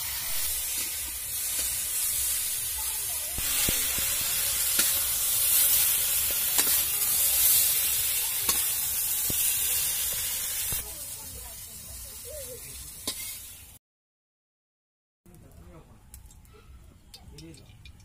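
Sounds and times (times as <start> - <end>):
vegetables sizzling in hot oil: 0.0 - 13.8
metal spatula scraping pan: 13.0 - 13.5.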